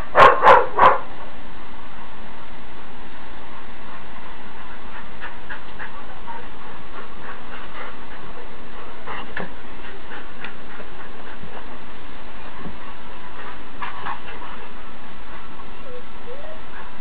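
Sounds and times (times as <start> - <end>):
steady hiss: 0.0 - 17.0
dogs clicking and scuffing: 4.7 - 15.7.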